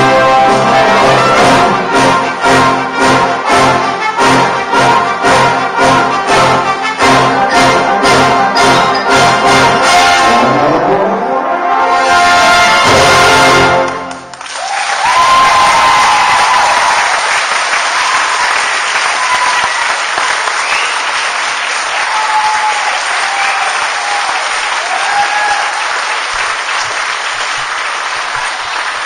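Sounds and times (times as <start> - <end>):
audience applauding: 13.7 - 29.0
voices cheering: 14.5 - 21.2, 21.8 - 26.2.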